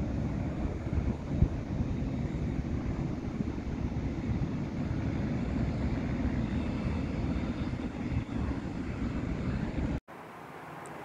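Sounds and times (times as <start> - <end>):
jet engine rumble with hiss: 0.0 - 11.0.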